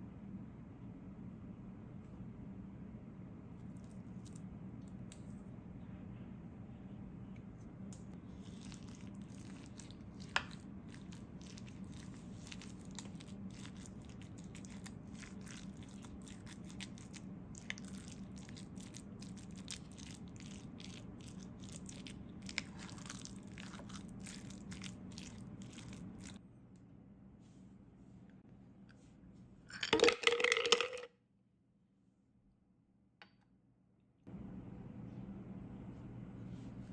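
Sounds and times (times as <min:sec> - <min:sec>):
spoon stirring sticky rice: 0:08.3 - 0:26.4.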